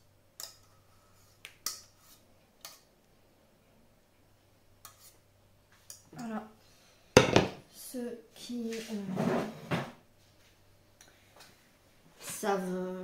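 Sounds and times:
kitchenware clicking and tapping: 0:07.2 - 0:07.6.

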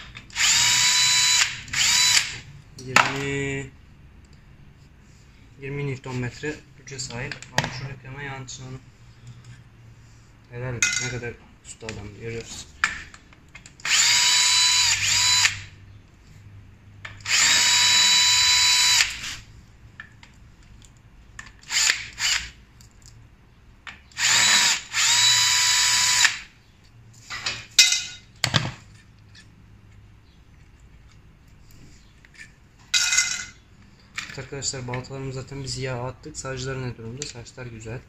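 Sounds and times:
cordless drill whining: 0:00.3 - 0:02.5, 0:13.8 - 0:15.7, 0:17.2 - 0:19.4, 0:21.6 - 0:22.6, 0:24.1 - 0:26.5.

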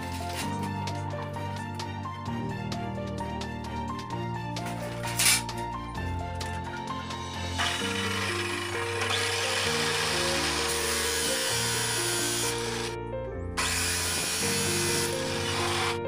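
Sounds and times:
background music: 0:00.0 - 0:16.0
chop saw grinding steel rod: 0:07.5 - 0:12.9, 0:13.6 - 0:16.0.

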